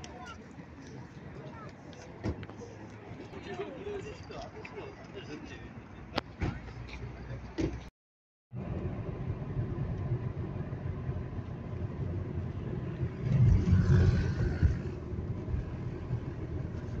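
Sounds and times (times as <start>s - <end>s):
car engine and road noise: 8.5s - 17.0s.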